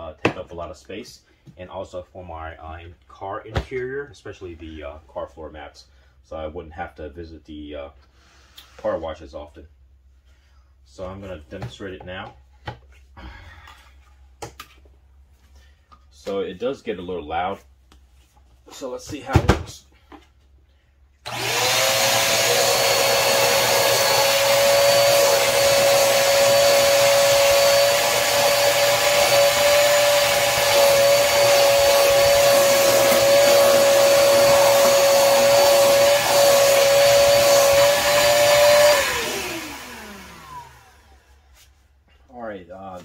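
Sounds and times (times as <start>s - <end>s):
shop vacuum motor whining: 21.2s - 41.4s.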